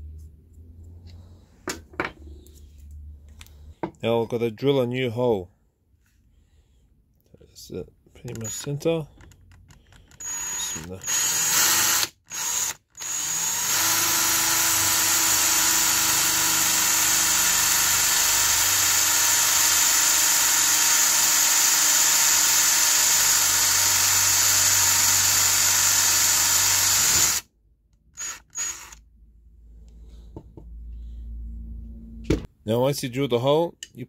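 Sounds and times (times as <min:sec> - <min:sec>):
cordless drill boring into wood: 0:08.3 - 0:27.5, 0:28.2 - 0:29.0.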